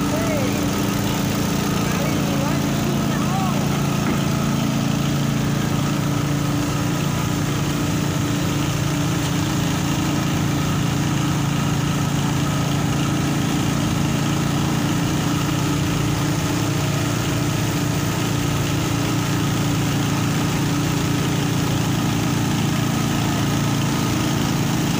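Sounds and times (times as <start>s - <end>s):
heavy engine idling: 0.0s - 24.9s.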